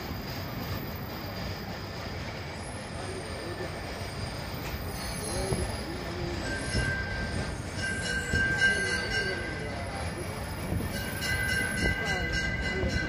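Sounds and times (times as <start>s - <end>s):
tram rumbling: 0.0s - 13.0s
high wheel squeal: 2.5s - 11.8s.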